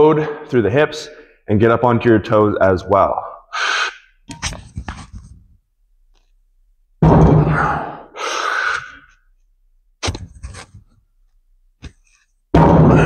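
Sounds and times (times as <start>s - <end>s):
sharp exhale: 3.5s - 4.1s, 8.2s - 9.1s.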